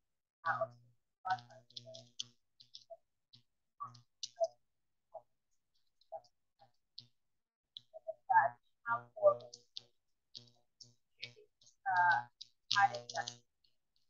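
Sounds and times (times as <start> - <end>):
choppy fragments of woman's voice: 0.4 - 2.2, 3.8 - 5.3, 7.8 - 13.5
sharp high clicks: 9.4 - 13.5.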